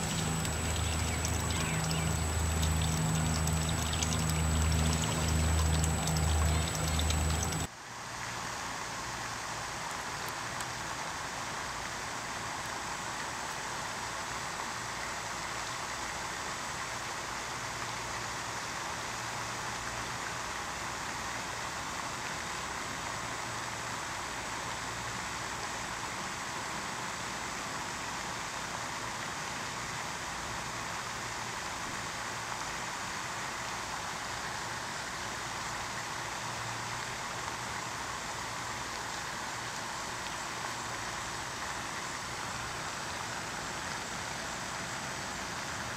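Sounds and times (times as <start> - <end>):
water splashing along shoreline: 0.0 - 7.7.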